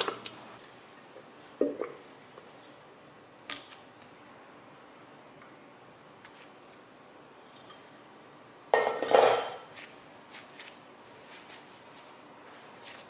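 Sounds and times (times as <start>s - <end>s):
kitchenware clattering on hard surface: 8.8s - 9.7s.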